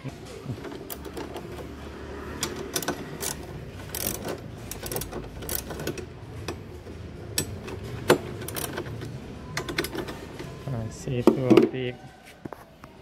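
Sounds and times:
ratchet wrench clicking: 2.4 - 6.6, 7.4 - 9.0.

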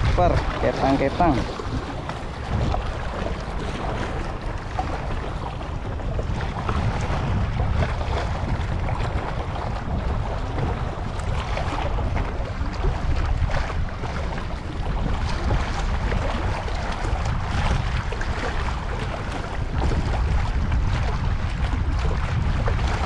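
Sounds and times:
waves lapping against rocks: 0.0 - 23.0
wind buffeting microphone: 0.0 - 23.0.

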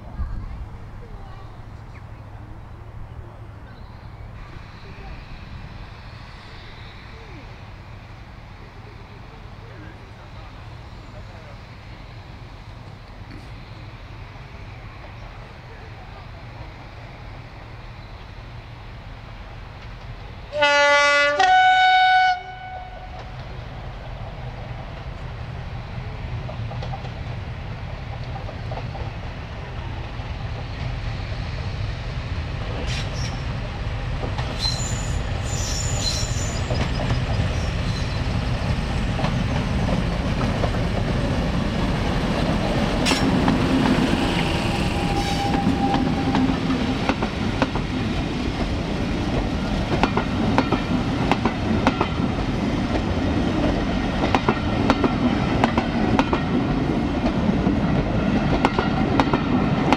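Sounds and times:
train wheels on rails: 0.0 - 59.9
two-tone locomotive horn: 20.5 - 23.4, 44.4 - 46.7.

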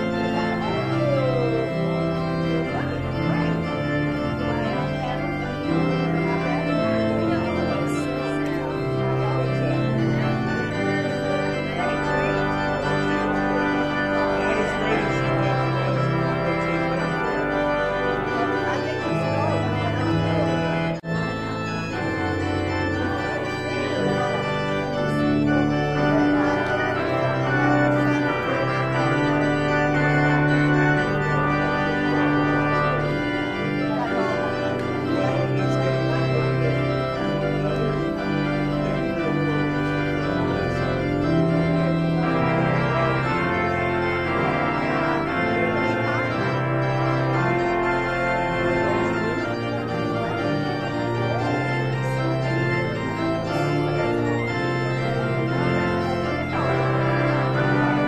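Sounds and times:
church organ playing: 0.0 - 58.0.

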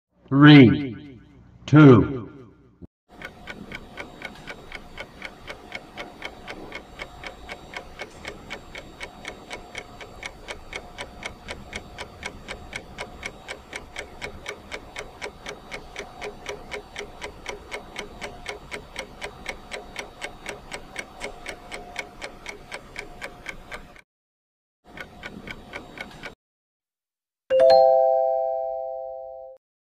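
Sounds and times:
clock-like ticking: 3.1 - 24.0, 24.9 - 26.4
faint held tone: 27.5 - 29.6.

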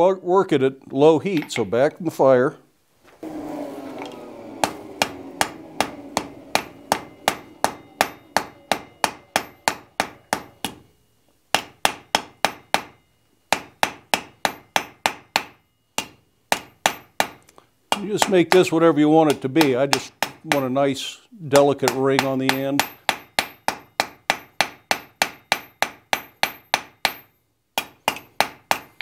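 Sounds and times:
anvil ringing: 3.2 - 10.8, 11.6 - 17.4, 21.8 - 27.3
hammer blows on hot iron: 3.2 - 10.8.

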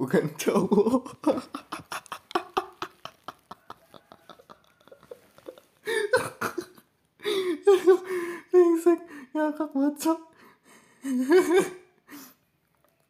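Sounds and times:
man laughing: 0.5 - 9.0, 11.0 - 11.8.

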